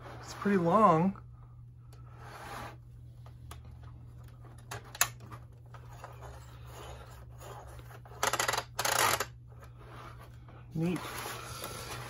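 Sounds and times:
plastic toy parts rattling: 8.1 - 9.3.

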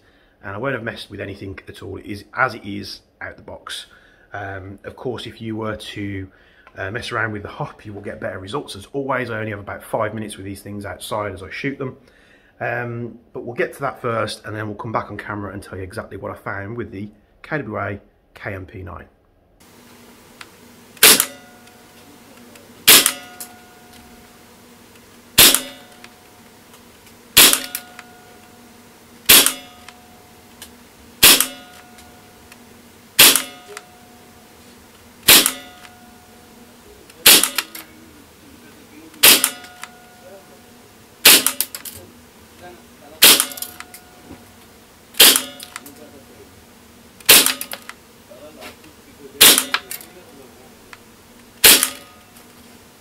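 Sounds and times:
airsoft gun shots: 21.0 - 21.5, 22.8 - 23.6, 25.4 - 26.1, 27.4 - 28.3, 29.2 - 30.0, 31.2 - 32.0, 33.2 - 33.9, 35.2 - 36.0, 37.2 - 37.9, 39.2 - 39.9, 41.2 - 41.8, 43.2 - 43.9, 45.2 - 45.9, 47.2 - 47.9, 49.4 - 50.0, 51.6 - 52.2.

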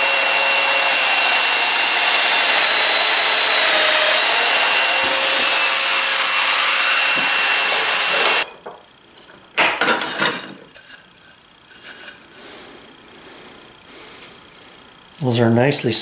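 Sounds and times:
power joiner whining: 0.0 - 8.5.

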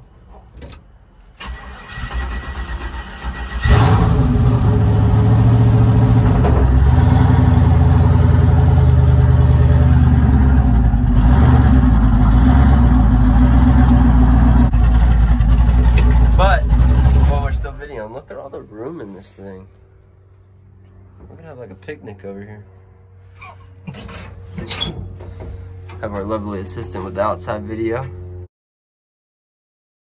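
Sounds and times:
engine cranking on starter: 1.4 - 7.0
engine running loudly: 3.6 - 17.8.

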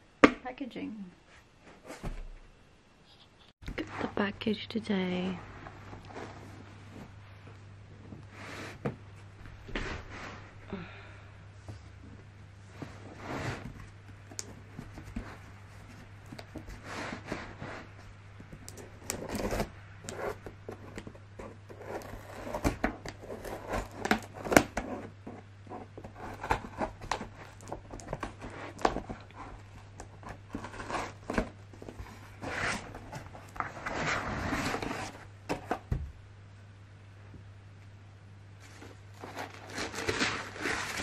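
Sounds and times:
cardboard flaps scraping: 18.9 - 36.0, 38.6 - 41.0.

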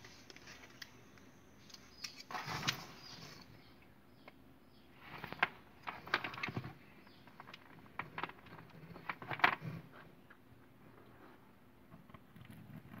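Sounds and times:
plastic clicks and rustles: 5.1 - 9.9.

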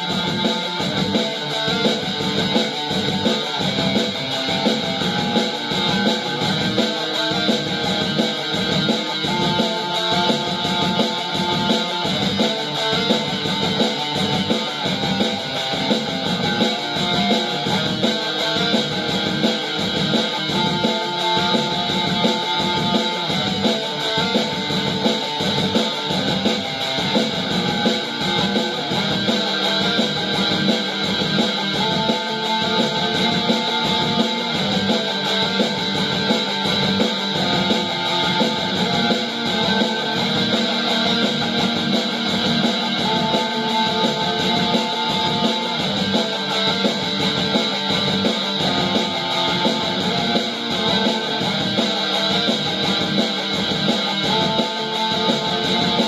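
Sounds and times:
instrumental electric guitar music: 0.0 - 56.0.

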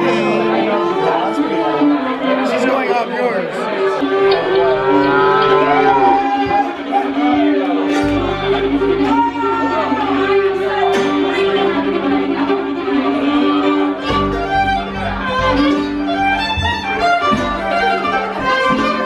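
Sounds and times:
bluegrass band playing live: 0.0 - 19.0
fiddle playing: 0.0 - 19.0.

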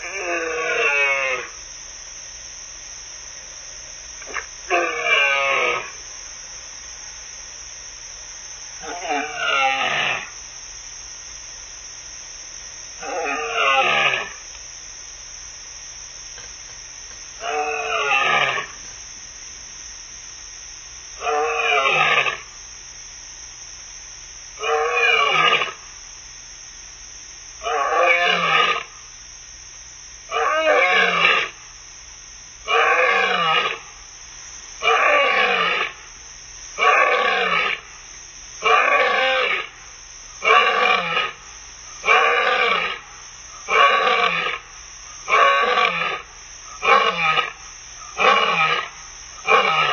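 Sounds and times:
lioness roaring: 45.3 - 46.2, 48.1 - 49.9.

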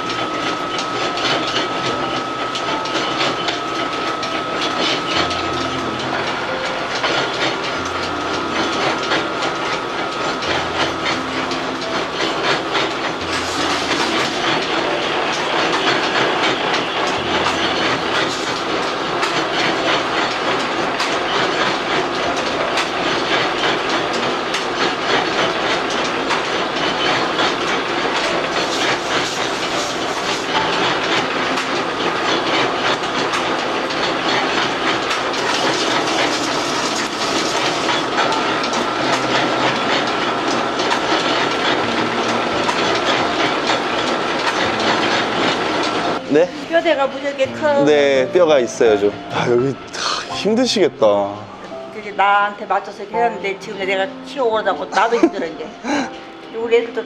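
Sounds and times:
noodle machine clattering: 0.0 - 57.0.

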